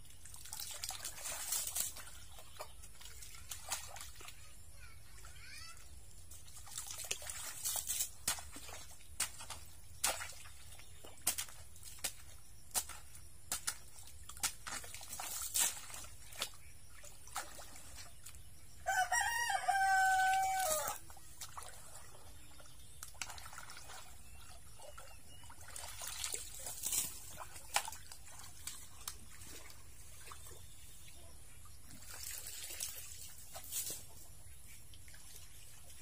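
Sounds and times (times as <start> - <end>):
shovels splashing in mud: 0.3 - 4.2, 6.4 - 16.7, 25.6 - 29.7
rooster crowing: 18.8 - 21.0.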